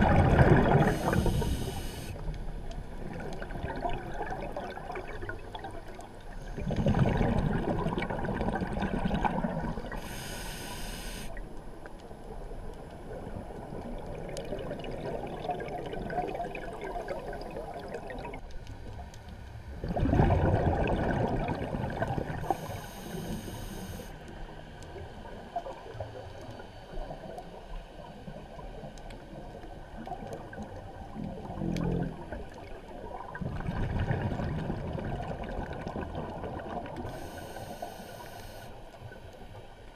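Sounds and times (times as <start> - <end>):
bubbles from diver exhaling: 0.0 - 1.3, 6.6 - 10.0, 19.8 - 22.5, 33.2 - 37.1
regulator inhalation hiss: 0.8 - 2.2, 10.0 - 11.4, 22.4 - 24.2, 37.1 - 38.8.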